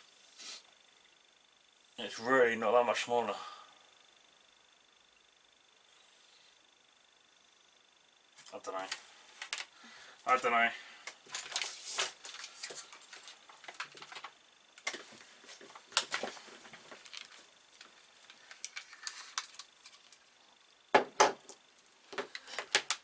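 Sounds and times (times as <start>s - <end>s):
plastic adapter and cables rattling: 17.0s - 20.2s
knocks on desk: 20.9s - 21.4s.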